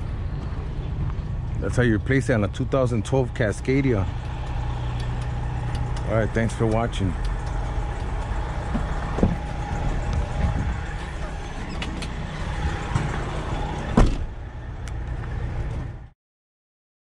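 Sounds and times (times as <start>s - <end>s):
diesel truck engine idling: 0.0s - 16.1s
loud thump: 8.7s - 9.5s, 13.9s - 14.3s.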